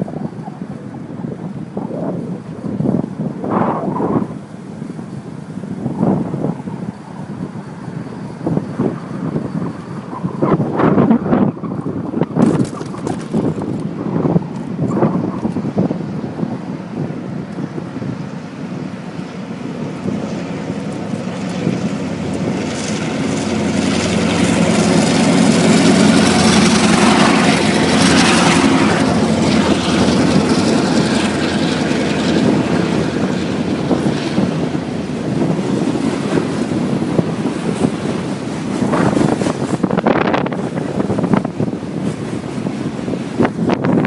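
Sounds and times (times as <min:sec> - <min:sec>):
diesel locomotive engines rumbling: 0:00.0 - 0:44.0
wind noise on microphone: 0:00.0 - 0:44.0
freight cars rolling: 0:18.5 - 0:44.0.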